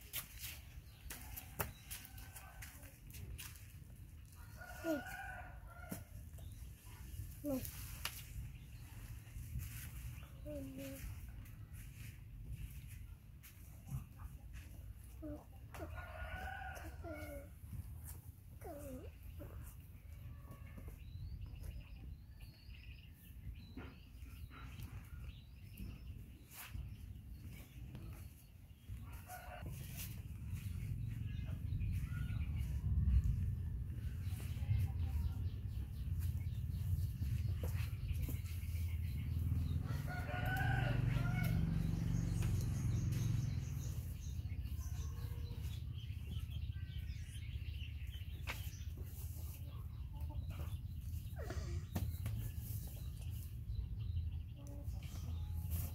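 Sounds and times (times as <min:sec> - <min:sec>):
small birds chirping: 0:03.5 - 0:55.9
steady low rumble: 0:28.7 - 0:40.1
birds chirping: 0:30.3 - 0:55.9.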